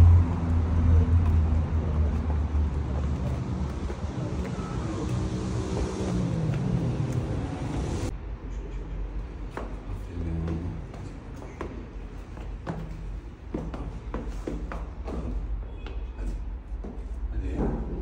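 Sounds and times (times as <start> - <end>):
car passing: 0.0 - 8.1
traffic rumble: 0.0 - 18.0.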